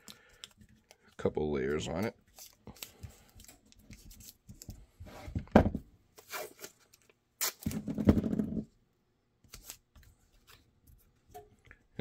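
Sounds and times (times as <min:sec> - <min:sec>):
tape crinkling and rubbing: 0:00.0 - 0:04.9, 0:06.2 - 0:07.8.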